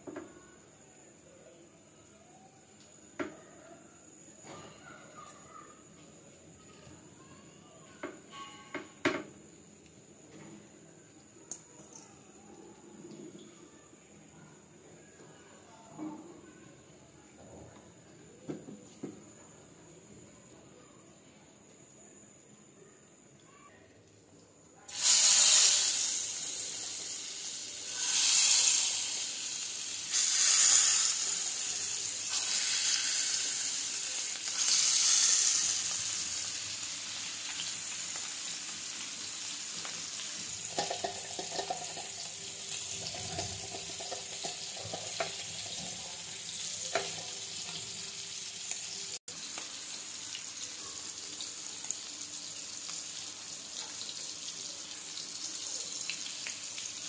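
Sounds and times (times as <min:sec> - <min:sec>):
fish sizzling in hot oil: 0:24.9 - 0:57.0.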